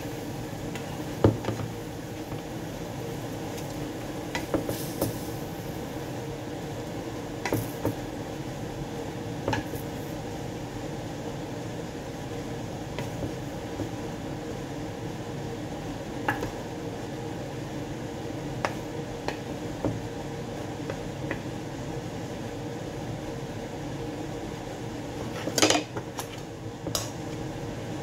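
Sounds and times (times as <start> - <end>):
food sizzling on stove: 0.0 - 22.9.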